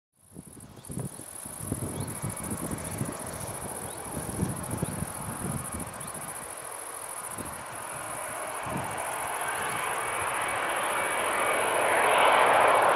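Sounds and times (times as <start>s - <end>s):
insects trilling: 0.2s - 12.9s
wind gusts on microphone: 0.3s - 12.9s
jet engine hiss: 1.0s - 12.9s.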